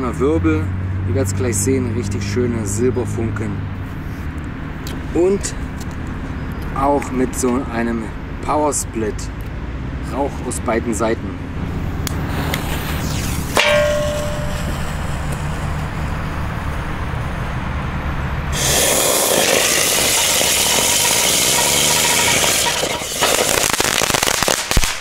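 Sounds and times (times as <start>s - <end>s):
ground firework hissing: 11.7s - 16.3s, 18.5s - 25.0s
firework crackling pops: 12.0s - 16.0s, 18.5s - 25.0s.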